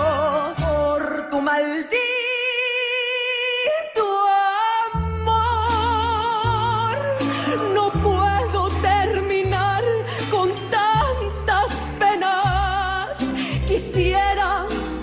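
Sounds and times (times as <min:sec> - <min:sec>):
bass notes: 0:00.0 - 0:01.5, 0:05.0 - 0:15.0
woman singing with vibrato: 0:00.0 - 0:15.0.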